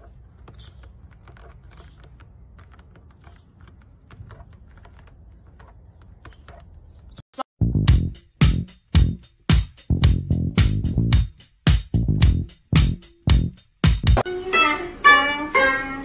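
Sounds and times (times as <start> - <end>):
loud music: 14.0 - 16.0.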